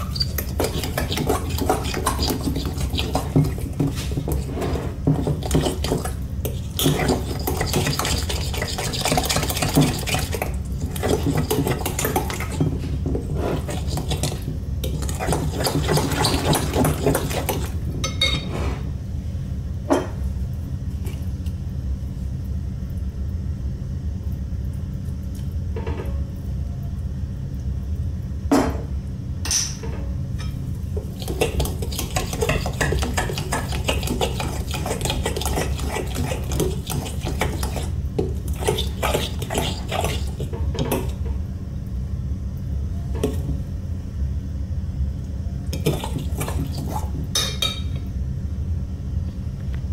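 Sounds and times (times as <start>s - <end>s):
spoon stirring batter in glass bowl: 0.0s - 18.4s, 31.0s - 41.2s.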